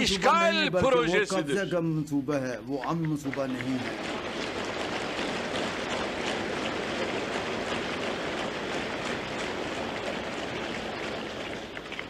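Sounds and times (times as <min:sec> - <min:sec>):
audience applause: 0:02.9 - 0:12.0.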